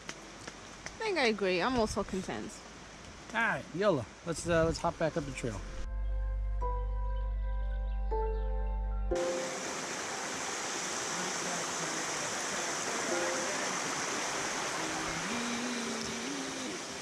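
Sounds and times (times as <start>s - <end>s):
background music: 5.2s - 9.8s
heavy rain falling: 9.2s - 17.0s.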